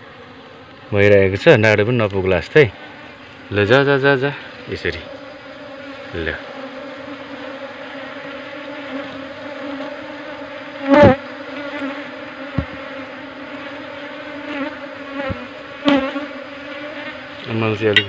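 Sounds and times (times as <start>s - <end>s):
honeybees buzzing: 0.0s - 18.0s
sharp knock: 12.5s - 12.8s
light thumps: 12.5s - 12.9s, 15.2s - 15.5s.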